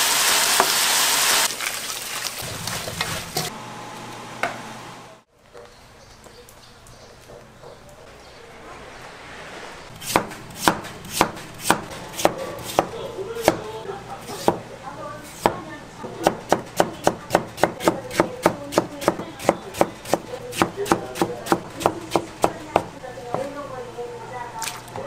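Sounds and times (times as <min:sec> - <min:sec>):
knife chopping on cutting board: 0:10.0 - 0:13.7, 0:14.4 - 0:14.6, 0:16.2 - 0:22.9.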